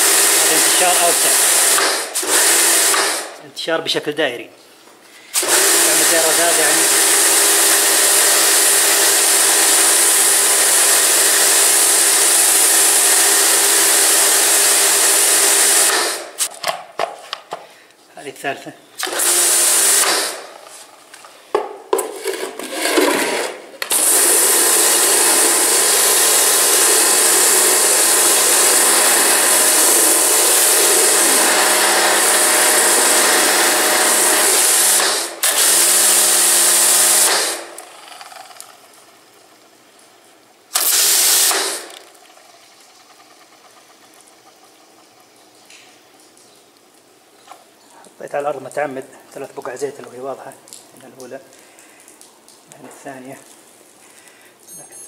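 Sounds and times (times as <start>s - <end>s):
pressure washer motor hum: 0.0s - 3.4s, 5.4s - 16.5s, 19.0s - 20.8s, 22.1s - 45.7s
water jetting hiss: 23.9s - 37.8s, 40.1s - 42.5s.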